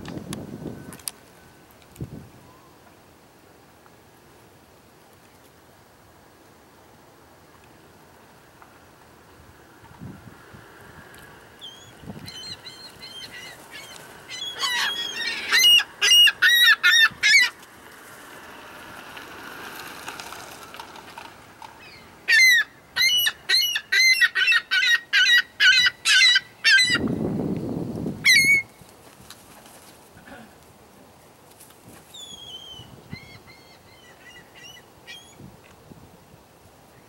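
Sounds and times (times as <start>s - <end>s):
gulls calling: 11.6s - 17.6s, 21.7s - 27.1s
low rush of noise: 17.1s - 23.0s.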